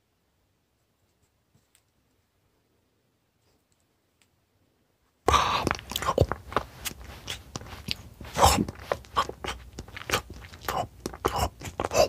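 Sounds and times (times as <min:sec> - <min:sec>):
close chewing and crunching: 0:05.3 - 0:12.0.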